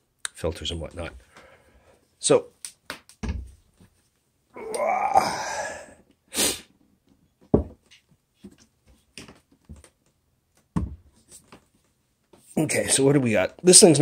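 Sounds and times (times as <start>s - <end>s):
man grunting and exhaling: 4.5s - 6.5s.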